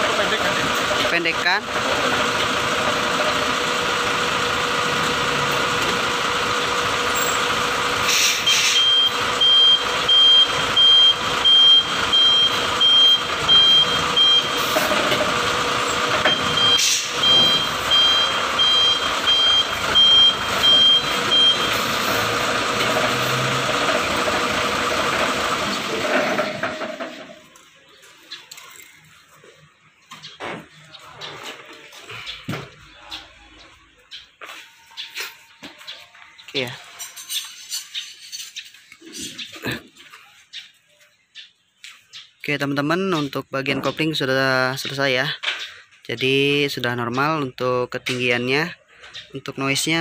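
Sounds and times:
truck engine running: 0:00.0 - 0:38.0
reverse alarm high beeps: 0:08.3 - 0:14.7, 0:16.2 - 0:22.0.

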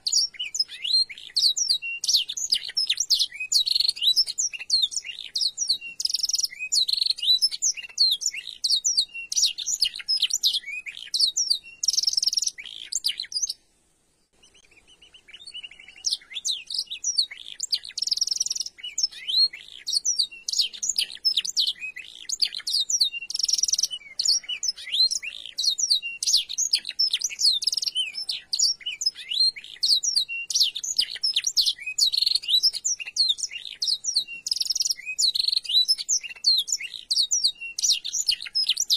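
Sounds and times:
canary singing chirps and trills: 0:00.0 - 0:13.7, 0:14.3 - 0:38.9.

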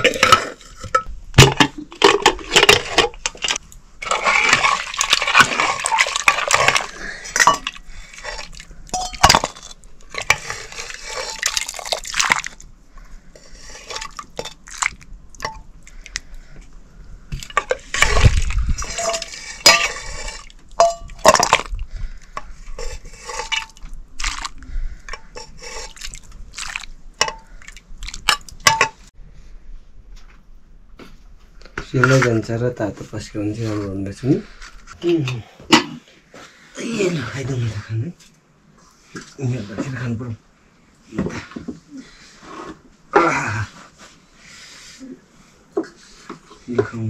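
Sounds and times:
metal pots and utensils clinking: 0:00.0 - 0:12.0, 0:17.4 - 0:21.8, 0:22.4 - 0:24.5, 0:27.2 - 0:27.6, 0:28.2 - 0:29.0
water splashing and dripping: 0:04.0 - 0:06.9.

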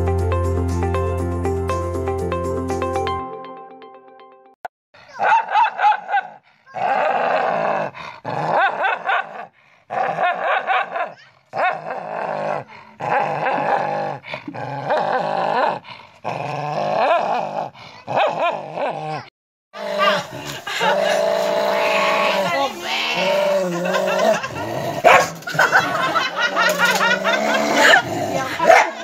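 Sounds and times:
dog barking: 0:05.1 - 0:06.4, 0:08.5 - 0:09.5, 0:10.2 - 0:11.8, 0:18.2 - 0:18.5, 0:25.0 - 0:25.8, 0:28.6 - 0:29.0
dog growling and snarling: 0:06.3 - 0:29.0.

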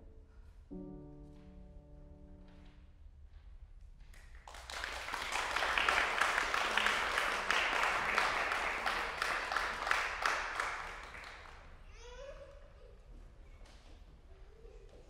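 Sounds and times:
piano notes: 0:00.0 - 0:03.6
audience applause: 0:04.4 - 0:11.8.

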